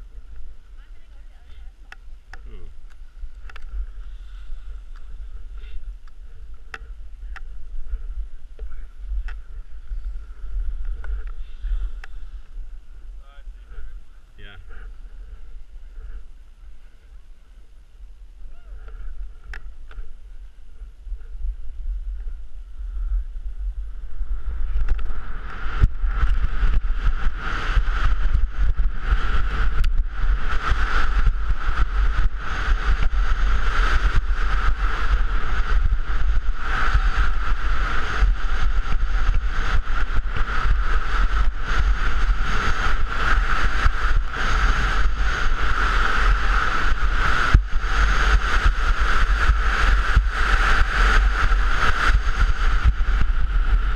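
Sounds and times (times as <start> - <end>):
wind buffeting microphone: 0.0 - 53.9
skis scraping over packed snow: 24.5 - 53.9.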